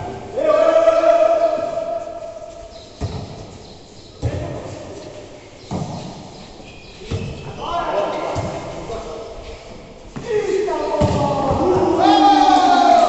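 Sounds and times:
player shouting: 0.0s - 1.9s, 10.3s - 13.0s
volleyball thuds echoing: 3.0s - 3.6s, 8.3s - 9.0s, 10.2s - 12.0s.

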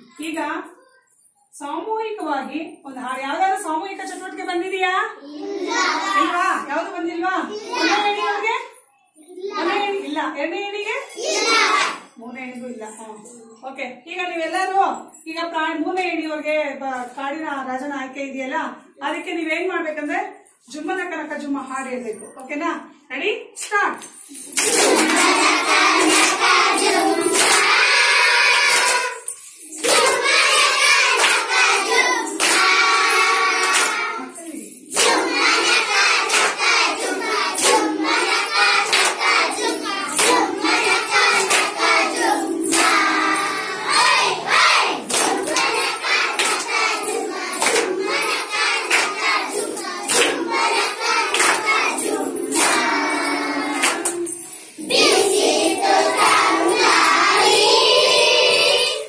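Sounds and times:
hand claps: 24.0s - 34.2s, 34.9s - 55.4s
children singing in chorus: 24.6s - 34.3s, 34.9s - 59.0s.

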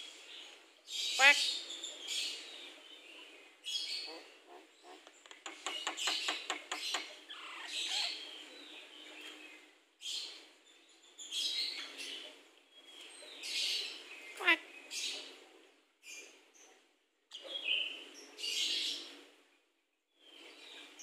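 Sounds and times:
bird harsh scratchy calls: 4.9s - 8.2s.

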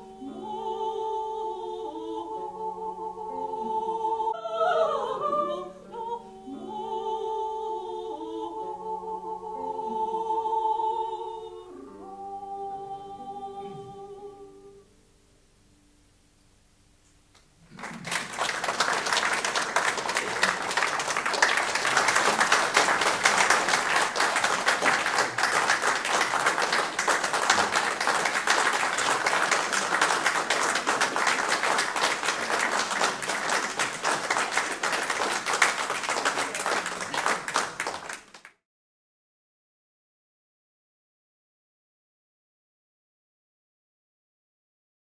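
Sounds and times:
audience applauding: 17.6s - 38.6s.

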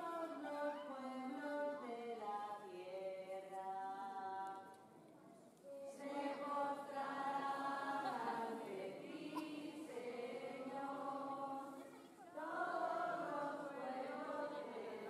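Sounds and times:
group of voices singing: 5.7s - 15.0s.

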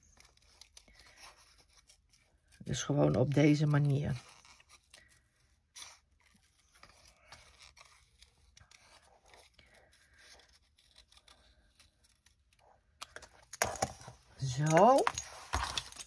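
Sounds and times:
scissors snipping paper: 0.0s - 5.2s, 5.8s - 13.2s.

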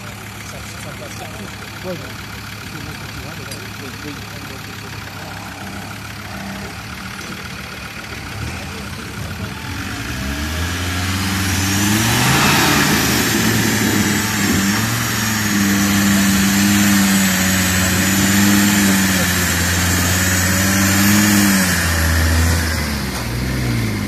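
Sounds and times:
truck engine revving: 0.0s - 24.0s.

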